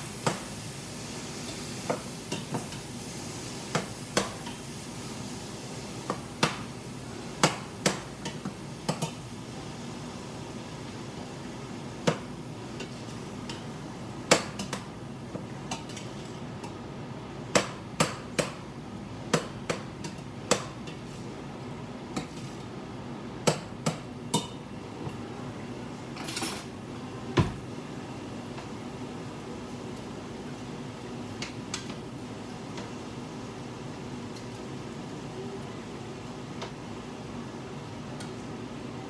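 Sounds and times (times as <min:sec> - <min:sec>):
utensils clinking on metal pots: 0:26.2 - 0:26.7.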